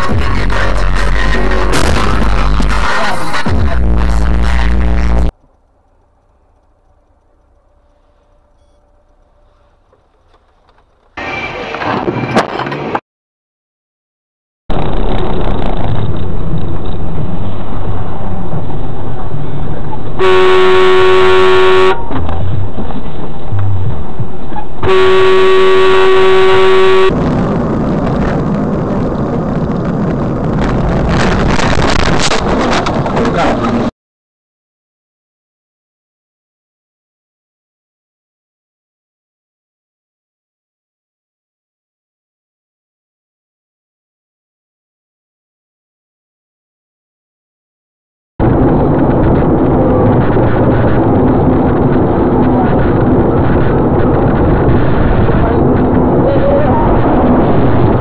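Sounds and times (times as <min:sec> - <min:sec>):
road and engine noise inside car: 0:04.1 - 0:13.0, 0:14.7 - 0:20.2, 0:22.0 - 0:24.9, 0:48.4 - 0:58.0
vehicle horn: 0:20.1 - 0:22.2, 0:24.8 - 0:27.2.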